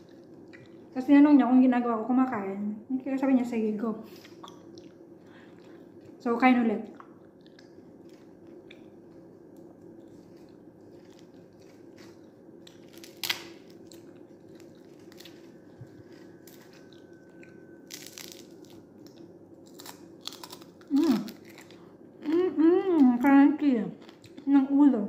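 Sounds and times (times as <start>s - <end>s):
steady low hum: 0.0s - 25.0s
crunching and chewing fried fish: 4.1s - 6.2s, 6.9s - 22.4s, 24.0s - 24.6s.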